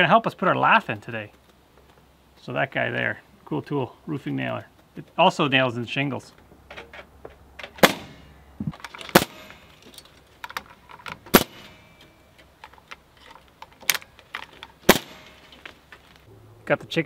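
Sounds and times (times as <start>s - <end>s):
nail gun shots: 7.8s - 8.3s, 9.1s - 9.8s, 11.3s - 12.0s, 14.8s - 15.5s
light metallic clicking and rattling: 8.7s - 16.3s.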